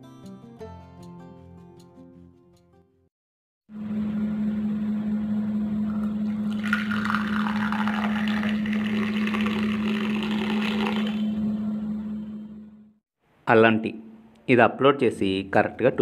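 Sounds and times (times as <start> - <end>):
tea pouring into a ceramic mug: 6.5 - 11.2.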